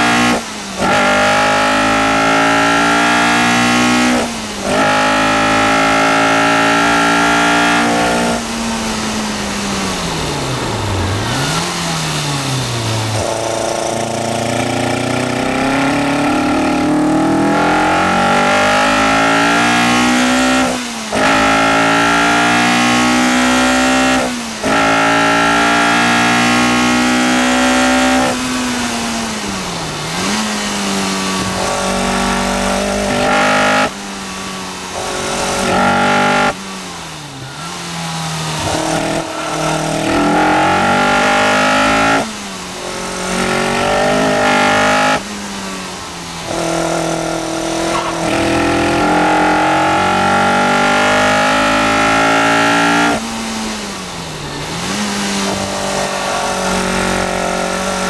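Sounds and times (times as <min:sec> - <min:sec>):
race car engine at full throttle: 0:00.0 - 0:58.0.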